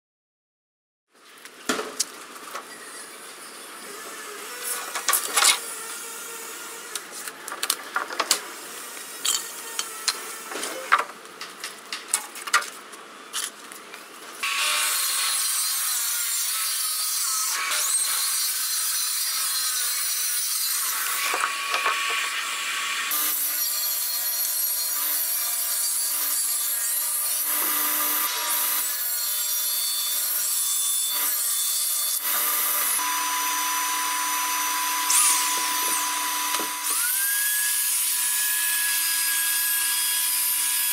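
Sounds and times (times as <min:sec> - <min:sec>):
router whining: 0:02.6 - 0:07.6, 0:32.2 - 0:40.9
circular saw cutting plywood: 0:02.6 - 0:11.0, 0:14.4 - 0:40.9.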